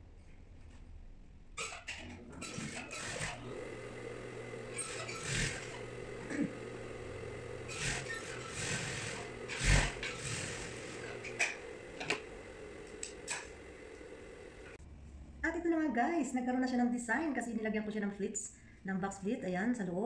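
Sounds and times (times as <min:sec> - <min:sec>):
sewing machine humming: 0:02.0 - 0:14.8.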